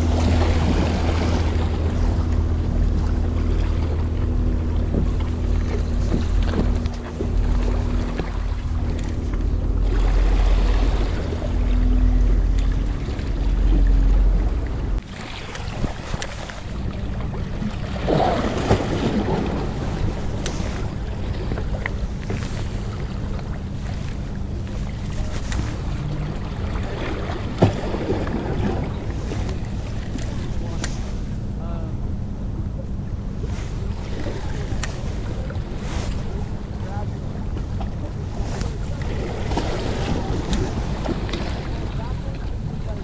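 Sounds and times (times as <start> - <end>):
heavy low rumble: 0.0 - 43.0
low motor hum: 0.0 - 43.0.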